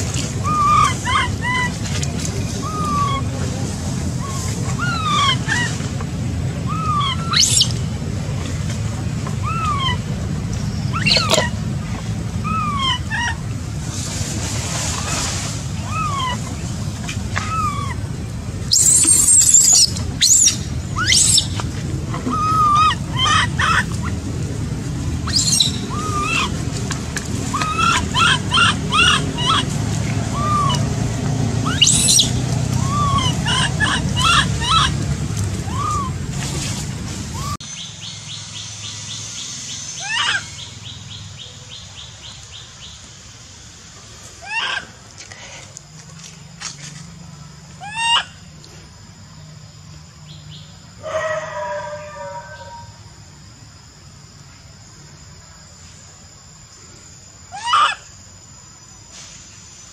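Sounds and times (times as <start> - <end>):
steady low rumble: 0.0 - 51.0
steady low hum: 0.0 - 59.9
baby macaque coo calls: 0.4 - 1.8, 2.6 - 3.4, 4.2 - 5.8, 6.7 - 7.8, 9.4 - 10.1, 10.9 - 11.6, 12.4 - 13.4, 15.8 - 16.6, 17.4 - 18.0, 18.7 - 24.2, 25.2 - 26.6, 27.5 - 30.9, 31.6 - 35.0, 35.6 - 36.2, 40.0 - 40.7, 44.4 - 44.9, 47.8 - 48.4, 57.5 - 58.1
high squeal: 31.6 - 35.0.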